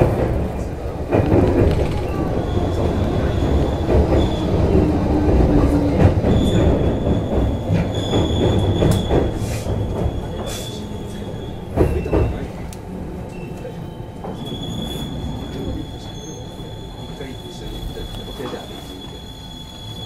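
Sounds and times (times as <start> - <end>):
train wheels rumbling on track: 0.0 - 20.0
high-pitched wheel squeal: 14.4 - 20.0.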